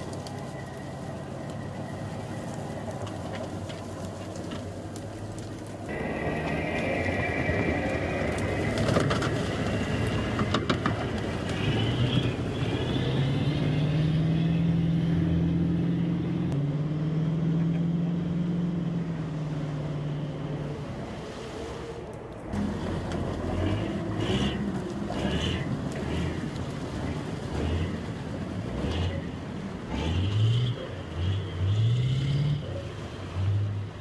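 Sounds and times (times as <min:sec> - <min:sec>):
another vehicle running: 0:00.0 - 0:34.0
diesel engine running hard: 0:05.9 - 0:20.9, 0:22.6 - 0:33.9.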